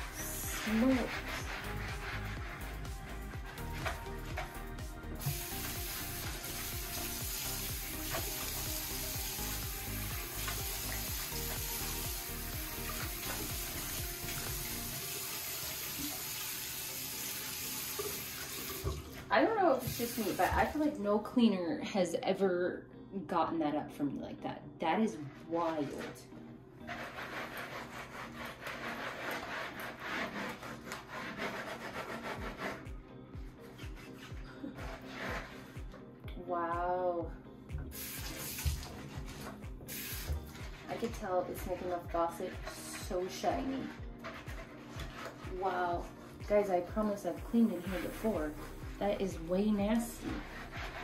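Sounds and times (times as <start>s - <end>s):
gloved hand scrubbing wall: 0.0s - 16.5s, 19.7s - 20.9s, 25.2s - 26.2s, 26.8s - 32.9s, 33.6s - 35.9s, 37.9s - 51.0s
quiet background music: 0.0s - 51.0s
faucet turned on: 5.2s - 19.2s, 37.9s - 38.9s, 39.9s - 40.6s
tap water running into basin: 5.2s - 20.8s, 37.8s - 41.2s.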